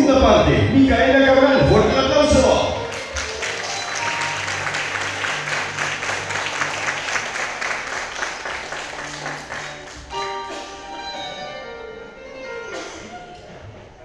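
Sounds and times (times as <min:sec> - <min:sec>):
audience clapping along: 0:02.4 - 0:10.6
ringing chord: 0:02.7 - 0:07.6.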